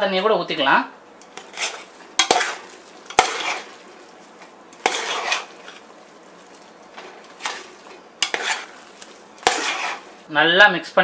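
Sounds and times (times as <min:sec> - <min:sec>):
metal spatula clinking pot: 0:01.2 - 0:03.8, 0:04.8 - 0:05.8, 0:07.4 - 0:10.2
spatula scraping rice in pot: 0:01.2 - 0:10.3.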